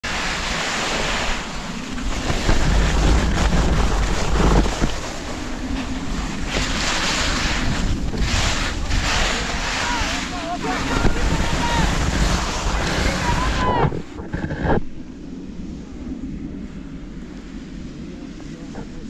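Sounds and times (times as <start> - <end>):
skis hissing over snow: 0.0 - 14.2
heavy rumble: 0.0 - 19.0
wind buffeting microphone: 0.0 - 19.0.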